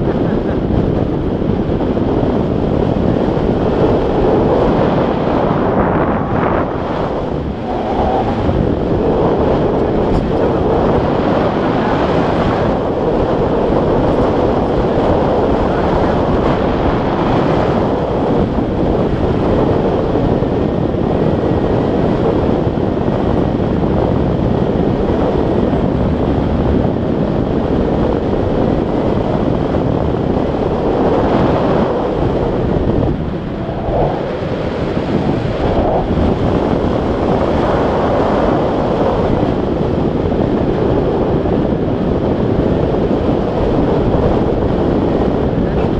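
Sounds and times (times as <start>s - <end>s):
wind rushing over microphone: 0.0s - 45.9s.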